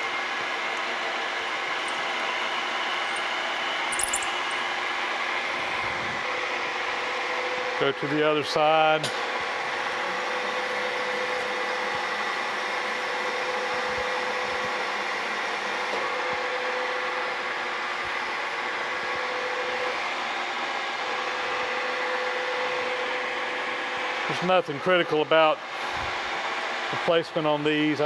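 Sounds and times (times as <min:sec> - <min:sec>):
milling machine running: 0:00.0 - 0:03.6.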